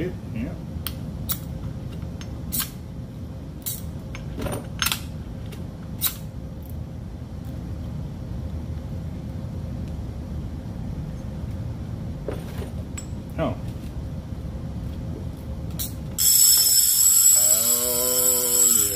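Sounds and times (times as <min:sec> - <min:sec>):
steady low hum: 0:00.0 - 0:18.9
fishing reel clicking: 0:16.2 - 0:18.9.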